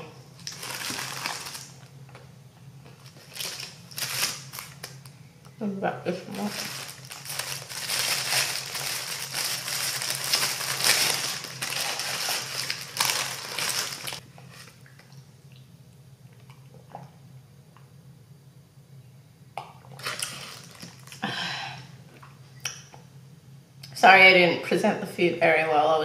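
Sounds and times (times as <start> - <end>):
paper wrapper crinkling: 0.4 - 1.8, 2.9 - 5.1, 6.3 - 14.2.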